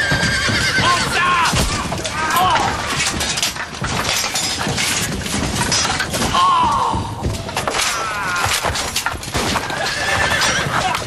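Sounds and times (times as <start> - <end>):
horses: 0.0 - 11.0
people shouting: 0.8 - 2.9, 6.2 - 9.0
thuds crashes and smashing: 1.0 - 11.0.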